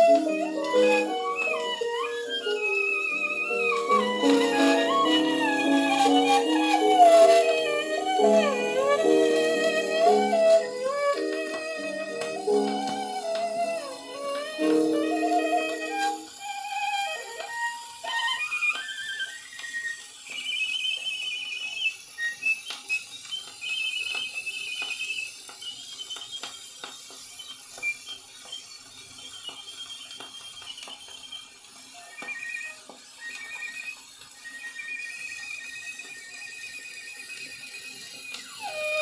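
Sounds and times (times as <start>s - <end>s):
solo violin trills: 0.0s - 19.8s, 32.0s - 39.0s
record surface hiss: 0.0s - 39.0s.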